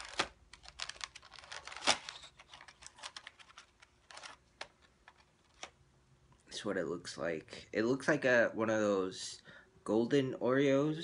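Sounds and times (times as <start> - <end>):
plastic cookie packaging crackling: 0.0 - 5.8.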